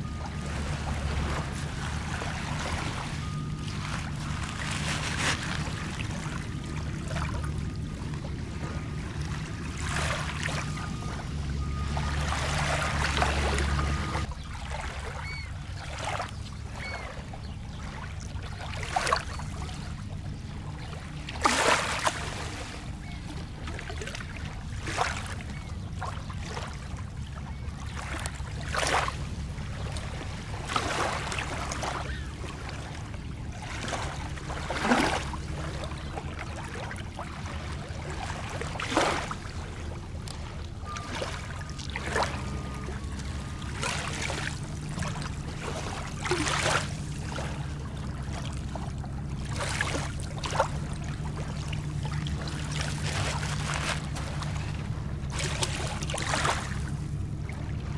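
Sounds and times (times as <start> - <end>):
small waves lapping on shore: 0.0 - 57.9
steady low rumble: 0.0 - 57.9.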